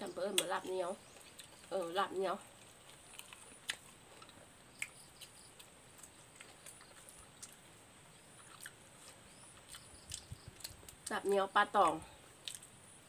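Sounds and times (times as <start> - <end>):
quiet chewing: 0.2 - 12.8
mouth clicks and smacks: 9.6 - 11.1.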